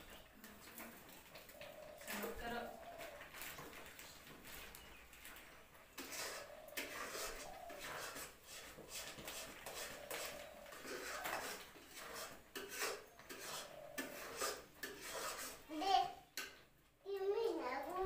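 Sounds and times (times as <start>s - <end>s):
metal spoon scraping a wok: 6.0s - 15.7s.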